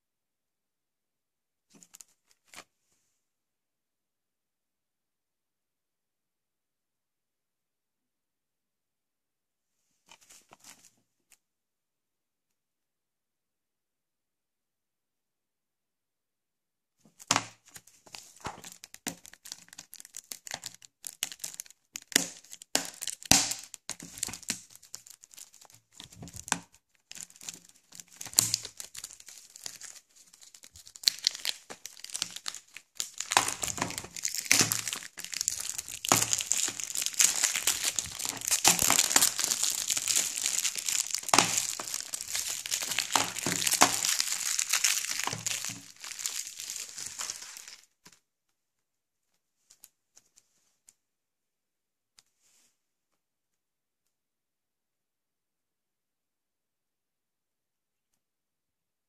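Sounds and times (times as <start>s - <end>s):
plastic shrink wrap crinkling: 17.2s - 48.2s.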